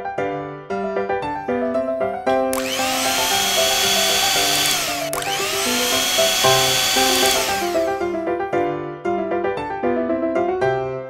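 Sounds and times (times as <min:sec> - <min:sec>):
toy blender motor whirring: 0:02.5 - 0:08.2.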